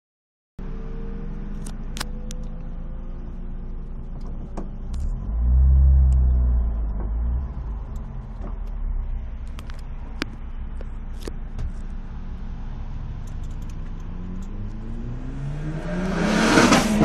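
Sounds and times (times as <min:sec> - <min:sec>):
car engine drone: 0:00.6 - 0:17.0
loud low rumble: 0:04.9 - 0:10.8.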